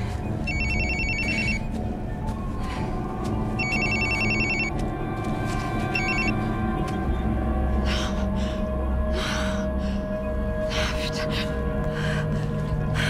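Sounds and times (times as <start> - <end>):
low steady music score: 0.0 - 13.0
mobile phone ringtone trilling: 0.5 - 1.6, 3.6 - 4.7, 6.0 - 6.4.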